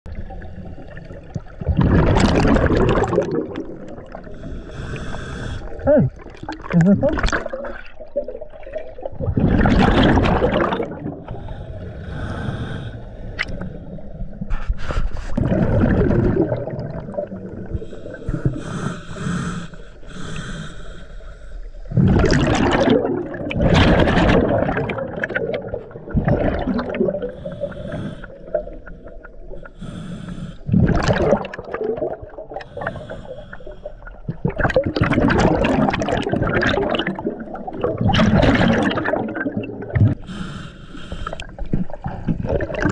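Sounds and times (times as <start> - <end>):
exhaled bubbles rumbling: 0.1 - 4.9, 5.6 - 18.7, 21.8 - 29.6, 30.6 - 40.3, 41.3 - 42.9
regulator inhalation hiss: 4.4 - 5.8, 17.8 - 21.8.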